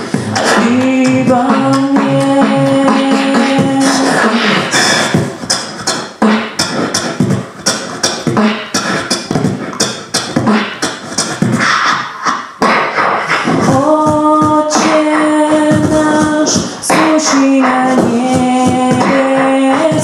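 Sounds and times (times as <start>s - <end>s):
man beatboxing: 0.0s - 20.0s.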